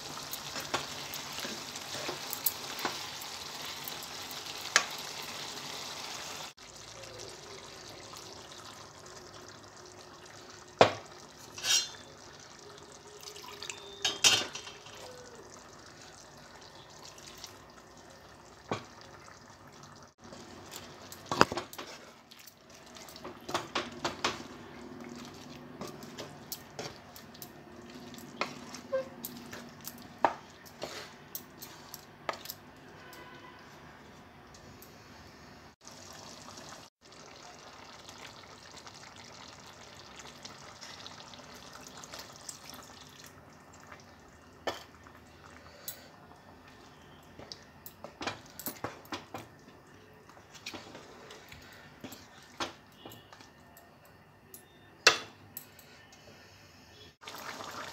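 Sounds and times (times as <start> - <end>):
curry bubbling in a pan: 0.0 - 31.9, 35.7 - 53.6, 57.2 - 57.9.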